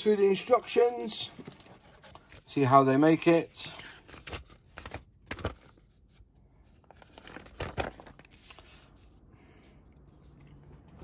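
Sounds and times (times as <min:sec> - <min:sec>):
paper rustling and crinkling: 0:00.2 - 0:09.2.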